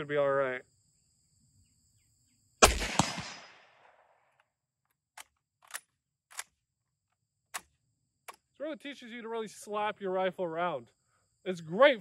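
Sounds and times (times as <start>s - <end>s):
rifle shot echoing: 2.6s - 4.2s.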